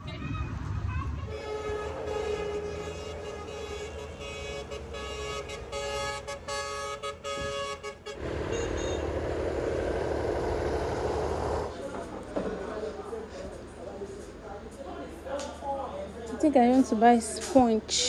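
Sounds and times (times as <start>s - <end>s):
vehicle horn blaring: 1.3s - 9.2s.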